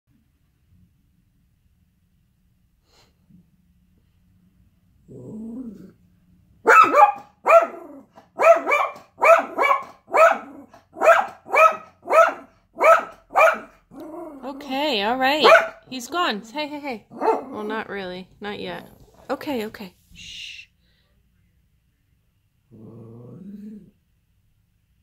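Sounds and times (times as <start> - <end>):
dog growling: 5.0 - 6.0, 7.6 - 8.2, 10.3 - 11.0, 13.6 - 14.9, 17.0 - 17.8, 18.7 - 19.3, 22.7 - 24.0
dog barking sharply: 6.6 - 13.8, 15.4 - 15.9, 17.2 - 17.6.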